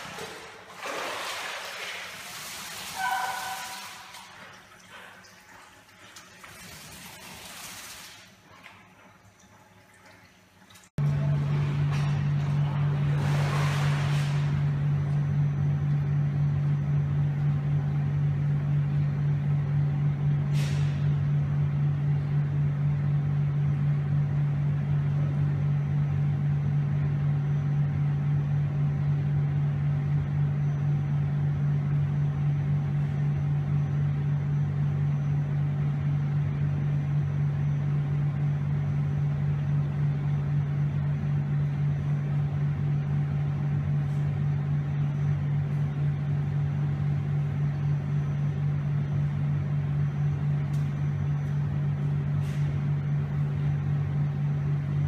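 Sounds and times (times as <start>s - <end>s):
churning water: 0.0s - 14.8s
pump machinery humming: 0.0s - 55.0s.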